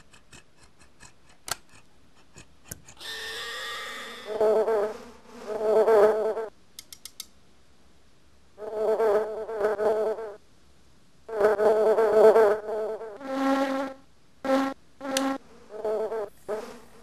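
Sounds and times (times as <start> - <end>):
flying insects buzzing: 3.0 - 6.5, 8.6 - 10.4, 11.3 - 17.0.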